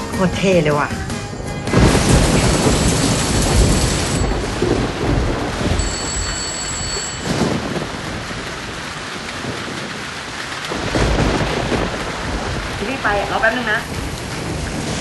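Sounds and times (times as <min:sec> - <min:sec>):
heavy rain pouring: 0:00.0 - 0:15.0
thunder rumbling: 0:00.0 - 0:15.0
thin high steady tone: 0:05.8 - 0:07.3.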